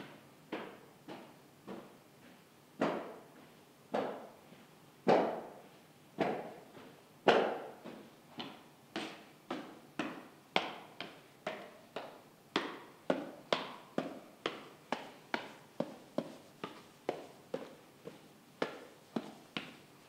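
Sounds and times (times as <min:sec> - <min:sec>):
hard footsteps echoing: 0:11.5 - 0:20.0.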